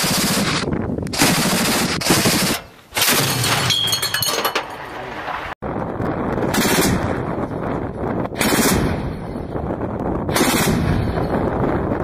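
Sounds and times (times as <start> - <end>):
autocannon firing bursts: 0.0 - 3.7, 8.3 - 9.1, 10.3 - 11.2.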